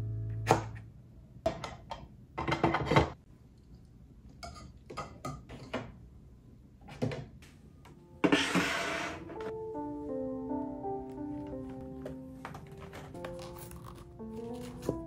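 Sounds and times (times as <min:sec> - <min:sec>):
plastic organizer scraping desk: 0:08.2 - 0:09.4.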